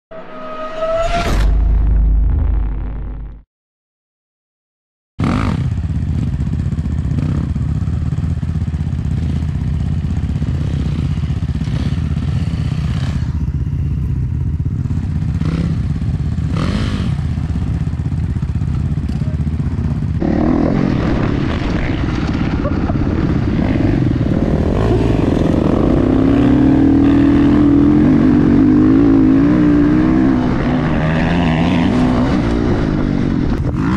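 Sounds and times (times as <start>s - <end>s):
motorcycle engine running: 5.2s - 33.9s.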